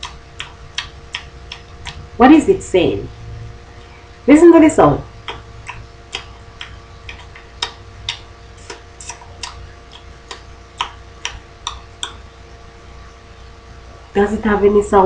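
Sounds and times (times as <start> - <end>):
tongue clicks and lip smacks: 0.0 - 2.1, 5.2 - 12.2
faint steady hum: 0.0 - 15.0.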